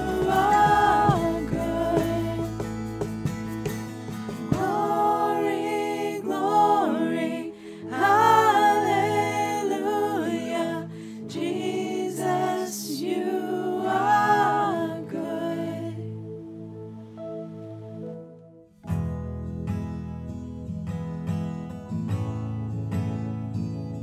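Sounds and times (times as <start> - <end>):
person singing worship song: 0.0 - 3.1, 4.0 - 16.4
held accompaniment chords: 0.0 - 20.2.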